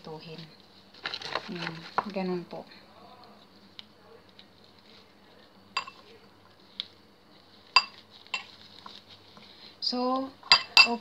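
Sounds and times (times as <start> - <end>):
metal spoon clinking ceramic bowl: 5.8 - 6.0, 7.8 - 8.5, 10.5 - 11.0.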